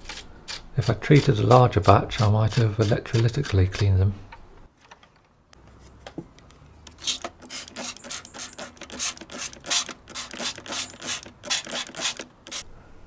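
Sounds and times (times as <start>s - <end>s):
wire brush scrubbing steel screws: 6.9s - 12.6s.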